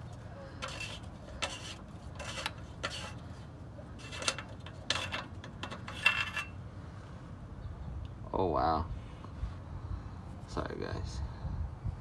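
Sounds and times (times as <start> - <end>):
wrench clinking and scraping on metal: 0.0 - 3.3, 4.0 - 6.6.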